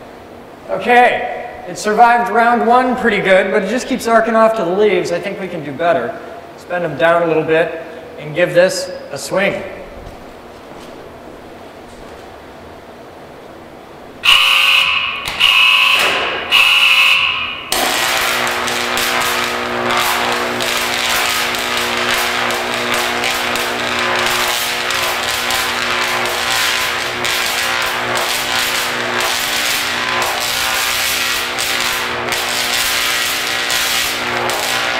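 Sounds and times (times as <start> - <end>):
electric arc crackling and buzzing: 14.2 - 34.9
high-pitched tone blasts: 14.2 - 34.9.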